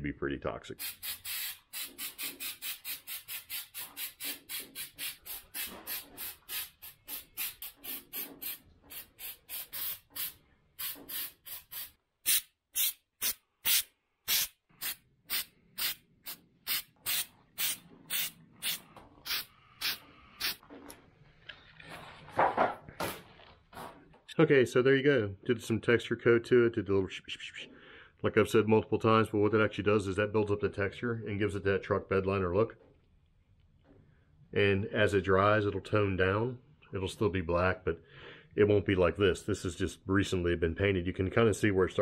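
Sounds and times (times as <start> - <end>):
aerosol spray hissing in bursts: 0.8 - 20.6.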